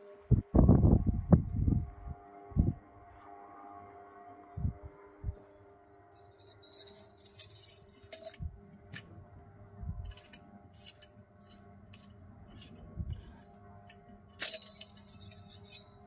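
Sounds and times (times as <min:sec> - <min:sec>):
bird chirps: 0:04.6 - 0:07.2, 0:12.2 - 0:15.9.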